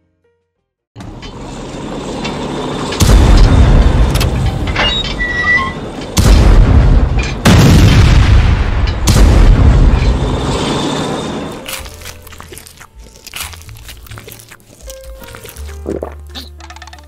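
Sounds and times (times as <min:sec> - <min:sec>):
cannon fire booms: 0:03.0 - 0:04.2, 0:06.2 - 0:10.6.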